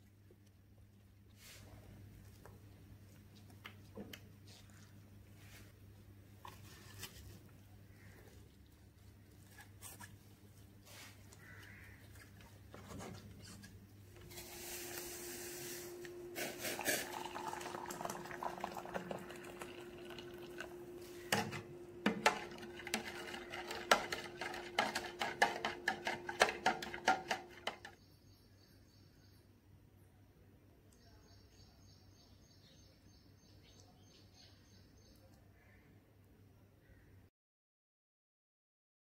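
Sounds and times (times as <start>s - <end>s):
spoon stirring and scraping jug: 12.0s - 28.0s
water pouring into plastic jug: 16.4s - 20.8s.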